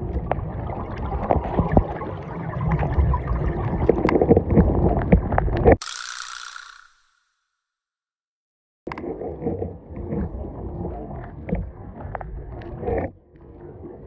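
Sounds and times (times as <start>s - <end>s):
underwater churning rumble: 0.0s - 5.8s, 8.9s - 14.0s
underwater clicks and crackles: 0.0s - 6.5s, 8.9s - 14.0s.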